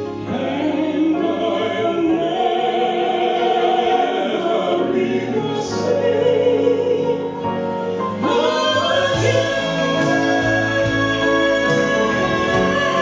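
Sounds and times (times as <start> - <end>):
man and woman singing gospel duet: 0.1 - 13.0.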